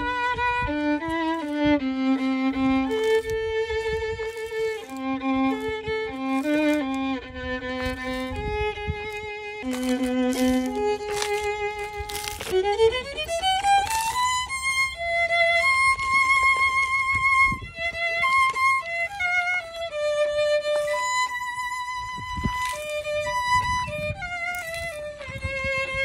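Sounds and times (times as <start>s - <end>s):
solo violin melody: 0.0s - 26.0s.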